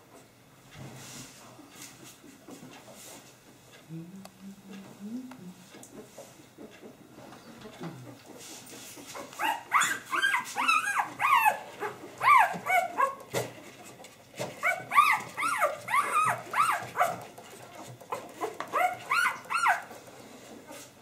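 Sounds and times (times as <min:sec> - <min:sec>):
puppy squealing and whining: 0:09.2 - 0:13.2, 0:14.6 - 0:17.2, 0:18.1 - 0:20.0.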